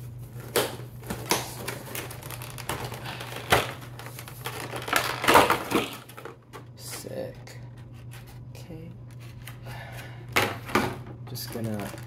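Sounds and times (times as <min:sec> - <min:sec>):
plastic tray crackling: 0:01.6 - 0:06.3, 0:11.4 - 0:12.0.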